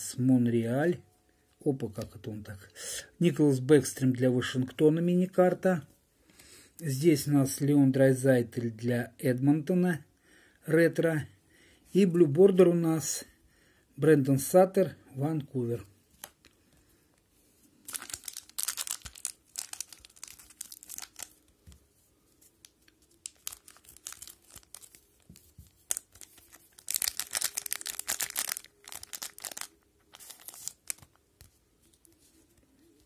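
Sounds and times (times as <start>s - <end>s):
wrapper tearing and crinkling: 17.8s - 21.5s, 22.6s - 31.2s.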